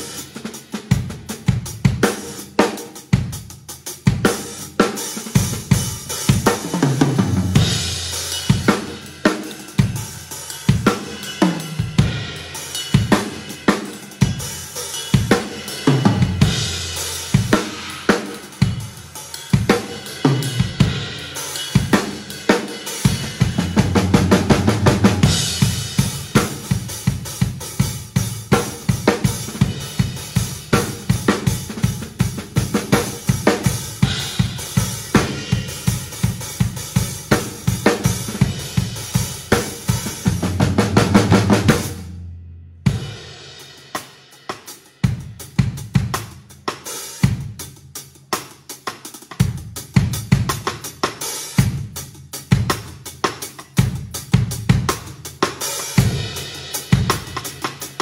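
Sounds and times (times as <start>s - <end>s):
cymbals: 0.0s - 3.0s, 4.1s - 42.1s, 53.5s - 58.0s
acoustic drum kit: 0.0s - 58.0s.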